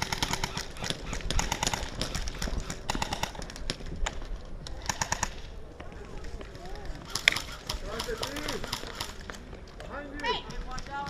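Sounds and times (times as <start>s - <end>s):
airsoft guns firing bursts: 0.0s - 3.9s, 4.8s - 5.4s, 7.1s - 9.4s.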